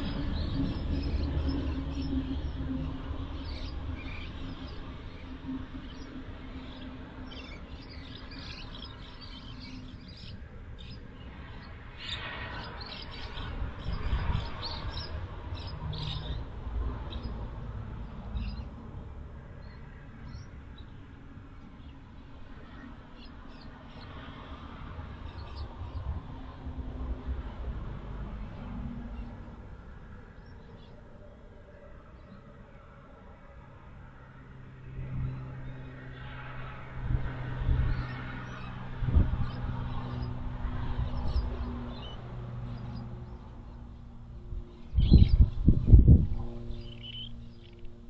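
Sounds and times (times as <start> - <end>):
small birds chirping: 0.0 - 18.8, 19.5 - 24.3, 25.2 - 26.2, 30.2 - 31.0, 37.7 - 48.0.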